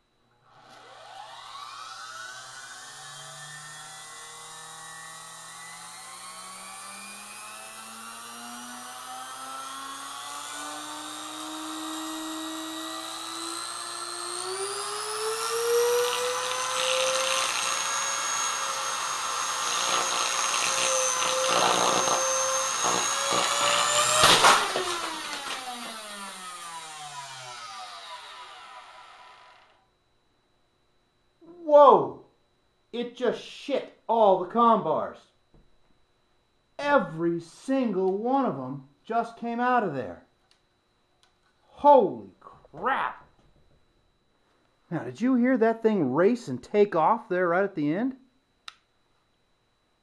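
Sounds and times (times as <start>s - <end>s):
vacuum cleaner motor whine: 0.5s - 29.8s
crackle of motor sparking: 19.8s - 26.6s.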